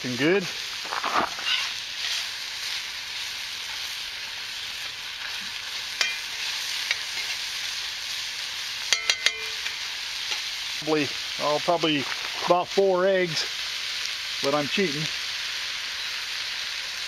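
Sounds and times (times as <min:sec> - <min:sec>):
meat and vegetables sizzling in oil: 0:00.0 - 0:17.0
metal spatula clinking on pan: 0:06.0 - 0:06.2, 0:08.9 - 0:09.7.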